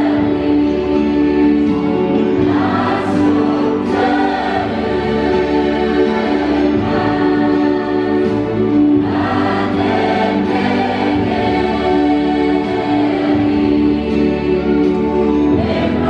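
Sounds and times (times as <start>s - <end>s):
women's choir singing: 0.0s - 16.0s.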